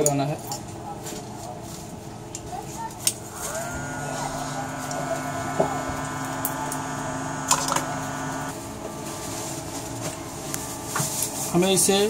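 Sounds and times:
hot air blower motor whine: 3.2s - 12.0s.

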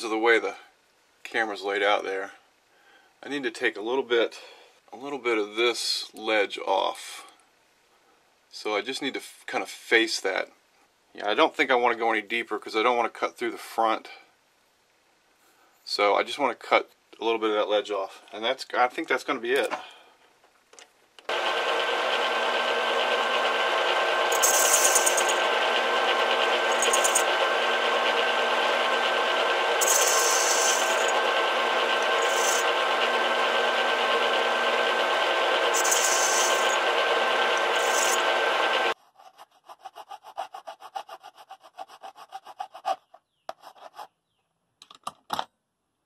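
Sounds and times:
lathe cutting metal: 21.3s - 39.0s
metal lathe whining: 21.3s - 39.0s
hand file rasping on metal: 24.3s - 25.4s, 26.7s - 27.3s, 29.8s - 31.2s, 32.0s - 32.7s, 35.7s - 36.8s, 37.6s - 38.3s, 38.9s - 44.0s.

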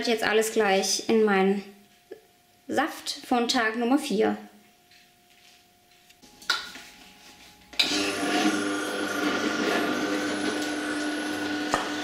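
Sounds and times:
juicer motor humming: 7.7s - 12.0s.

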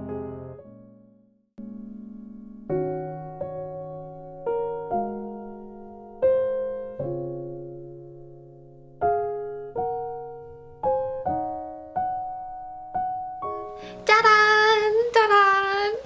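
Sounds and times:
piano melody: 0.0s - 16.0s
woman singing: 14.0s - 16.0s.

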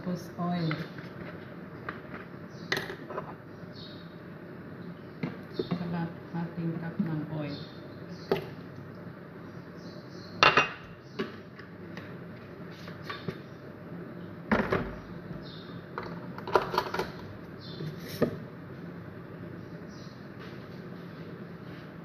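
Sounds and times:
cup and bottle clinking on countertop: 10.4s - 10.8s.

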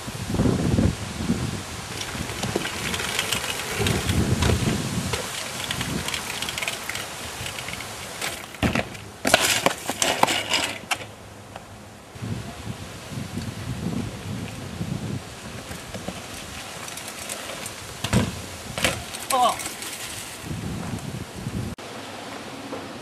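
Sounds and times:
wheels rolling over rough ground: 0.6s - 11.7s, 13.4s - 23.0s
sharp clatters: 1.9s - 11.1s.

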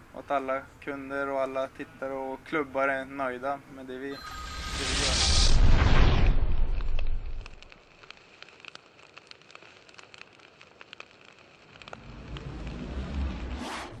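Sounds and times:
faint hiss: 0.0s - 13.3s
fire crackles and pops: 4.5s - 14.0s
low rumble: 11.9s - 14.0s.

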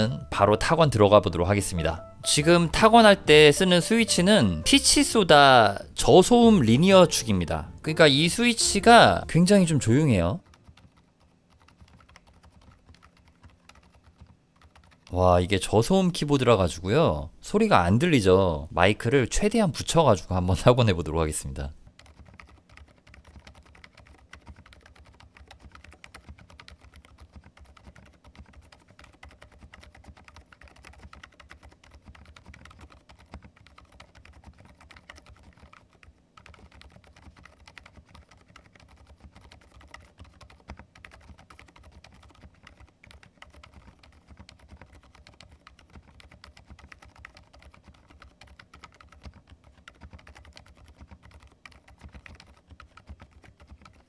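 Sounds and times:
quiet keyboard typing: 0.0s - 54.0s.

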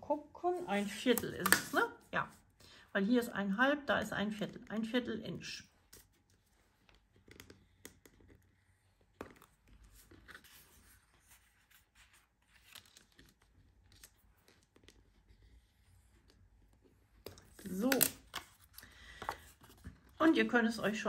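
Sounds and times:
card being folded: 5.8s - 20.2s.

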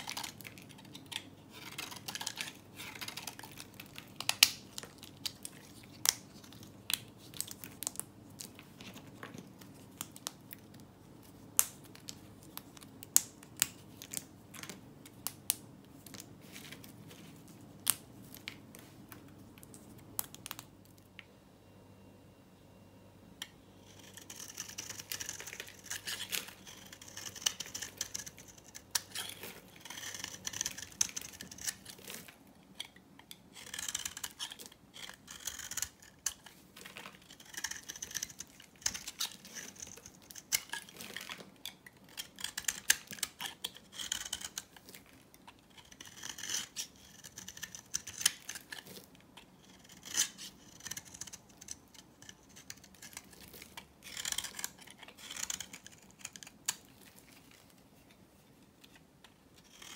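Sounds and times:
knife scraping hard soap: 0.0s - 4.0s, 23.8s - 36.5s, 37.1s - 41.4s, 42.1s - 45.0s, 45.7s - 57.6s, 59.6s - 59.9s.

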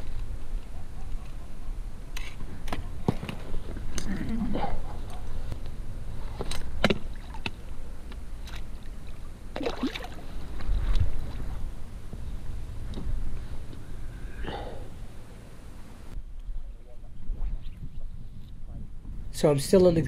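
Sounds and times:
wind rumble on microphone: 0.0s - 20.0s
water splashing and sloshing: 6.2s - 11.6s.

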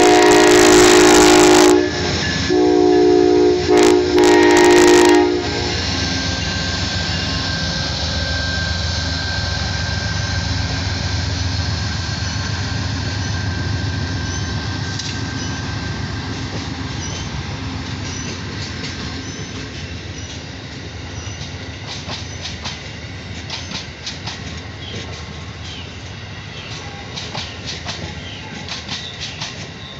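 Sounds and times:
train wheels rumbling on rails: 0.0s - 29.9s
wheels clicking over rail joints: 16.3s - 29.9s.

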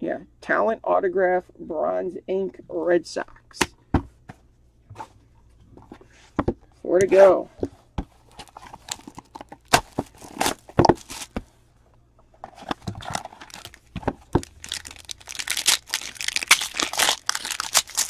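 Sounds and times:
wrapper crinkling and tearing: 8.4s - 11.3s, 12.6s - 18.0s.

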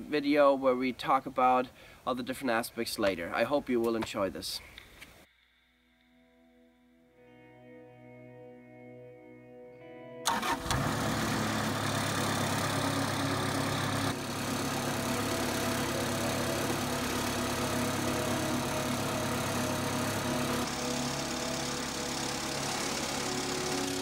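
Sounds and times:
sawmill engine running: 10.3s - 24.0s.

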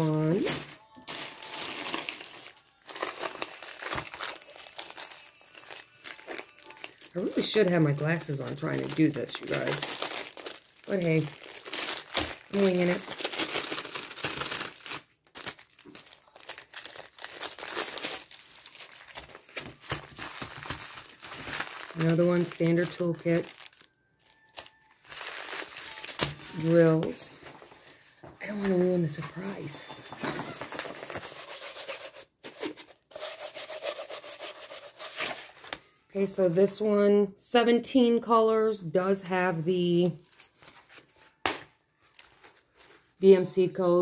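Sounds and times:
plastic packaging crinkling: 0.1s - 36.0s, 39.9s - 43.3s
canvas rustling in hands: 40.0s - 43.4s.

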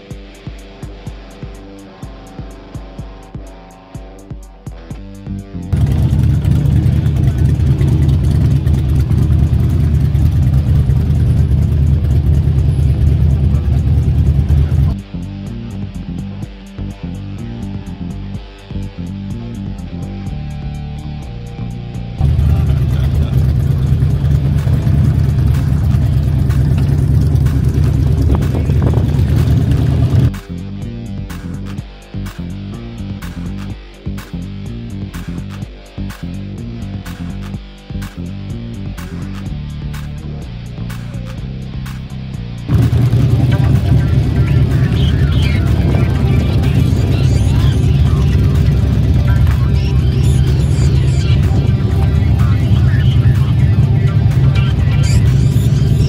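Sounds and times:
motorcycle engines rumbling: 5.5s - 56.0s
motorcycles riding past: 5.8s - 15.0s, 42.7s - 56.0s.

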